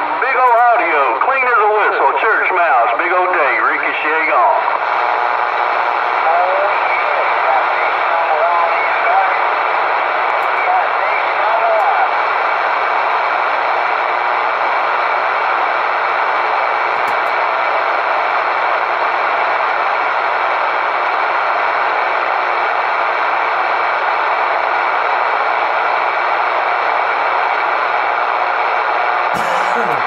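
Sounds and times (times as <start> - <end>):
radio static: 29.4 - 30.0.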